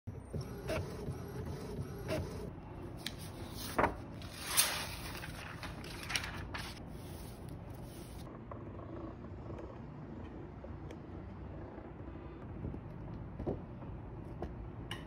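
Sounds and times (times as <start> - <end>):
paper rustle: 3.0 - 8.2.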